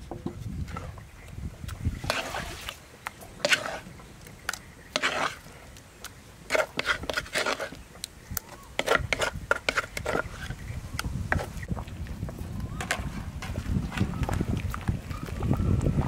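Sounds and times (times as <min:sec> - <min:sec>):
wooden spoon scraping mortar: 0:01.9 - 0:11.8.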